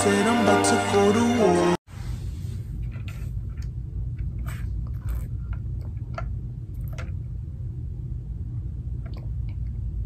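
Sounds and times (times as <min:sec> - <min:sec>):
steady low hum: 0:01.9 - 0:10.0.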